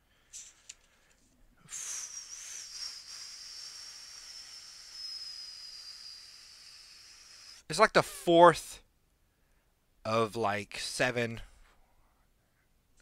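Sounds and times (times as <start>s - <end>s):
steady hiss with high whistle: 1.6s - 7.8s.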